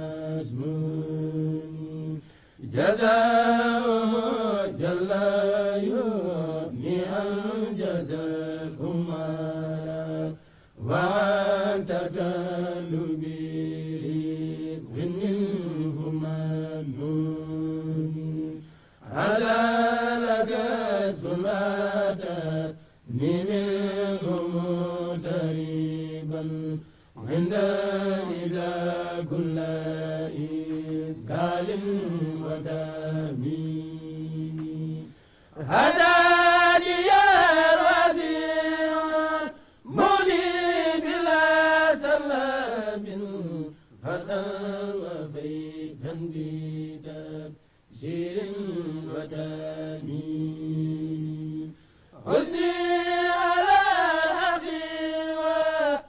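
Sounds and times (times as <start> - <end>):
men chanting: 0.0 - 56.0.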